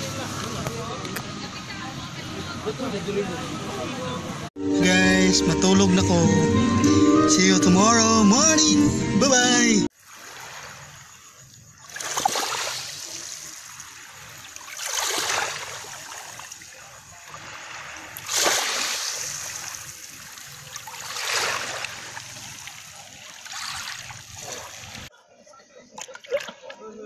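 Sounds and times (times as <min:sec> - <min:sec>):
small waves washing onto beach: 0:09.9 - 0:25.1.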